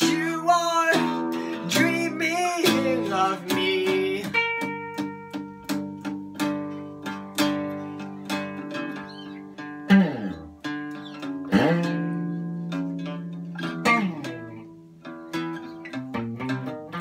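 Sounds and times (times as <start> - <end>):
person singing: 0.0 - 4.9
guitars strumming chords: 0.0 - 17.0.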